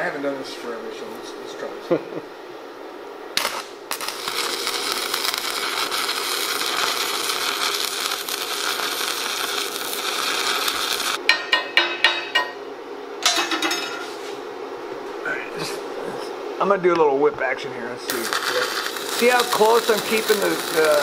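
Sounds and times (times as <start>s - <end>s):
welding arc crackling hiss: 3.3s - 12.5s, 18.0s - 21.0s
welding arc popping: 3.3s - 12.5s, 18.1s - 21.0s.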